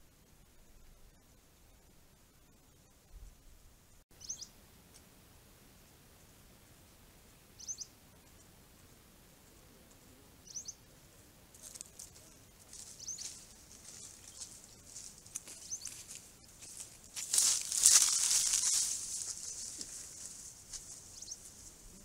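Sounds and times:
bird chirps: 4.1s - 4.6s, 7.6s - 8.4s, 10.4s - 10.9s, 12.8s - 14.6s, 15.4s - 16.5s, 21.0s - 21.6s
animal footsteps on dry ground: 11.5s - 22.0s.

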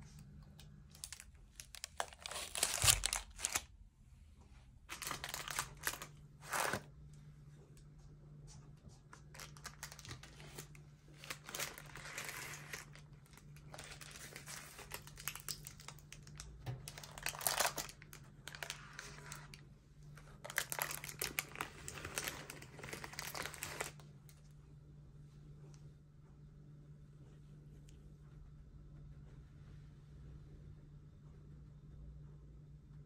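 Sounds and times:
baking parchment crinkling: 0.5s - 3.7s, 4.9s - 6.9s, 9.2s - 24.0s.

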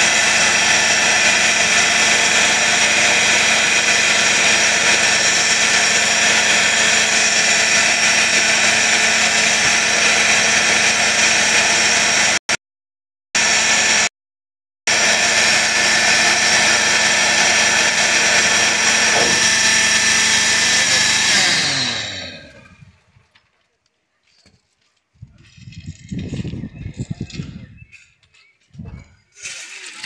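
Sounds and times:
engine running steadily: 0.0s - 12.4s, 14.9s - 22.9s.

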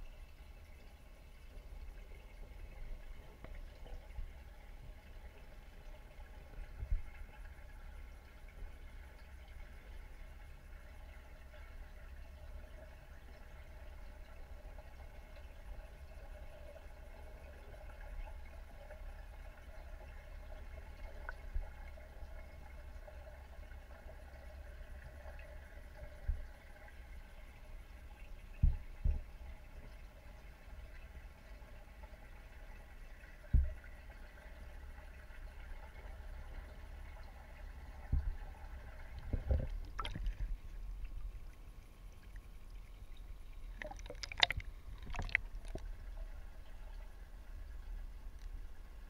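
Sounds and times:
faint hum: 0.0s - 49.0s
muffled underwater rumble: 0.0s - 49.0s
soft low thumps: 28.6s - 29.4s, 39.2s - 40.8s
water splashing and sloshing: 35.9s - 49.0s
sharp splashes and knocks: 39.3s - 40.5s, 43.8s - 45.9s.

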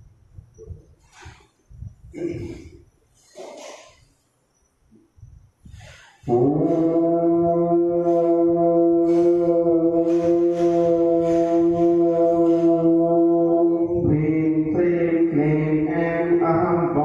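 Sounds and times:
conch shell blown: 5.9s - 14.0s.

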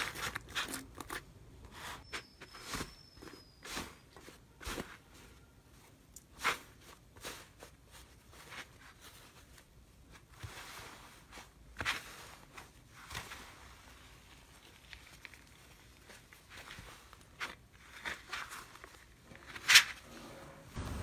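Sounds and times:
dried slime crunching: 11.6s - 19.0s.

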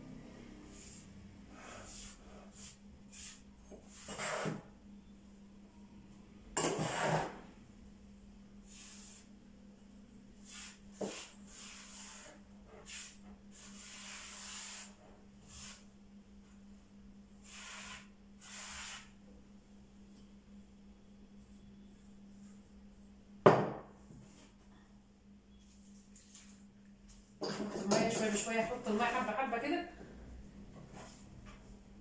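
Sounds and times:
hands rubbing dough swishes: 10.4s - 15.9s.

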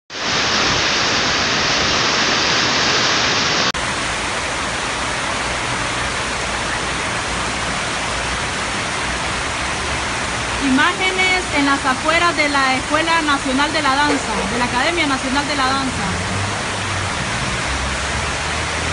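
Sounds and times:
floodwater rushing down channel: 0.1s - 18.9s
heavy rain and runoff: 0.1s - 18.9s.

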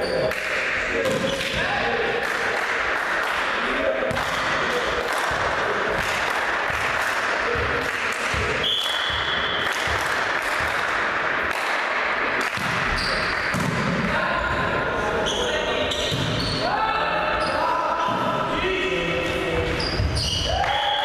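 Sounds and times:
volleyball bouncing on wooden floor: 4.1s - 11.0s, 12.4s - 14.0s.

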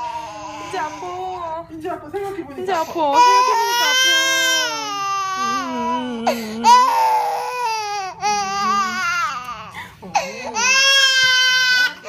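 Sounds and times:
baby crying in high wails: 0.0s - 1.3s, 3.2s - 9.6s.

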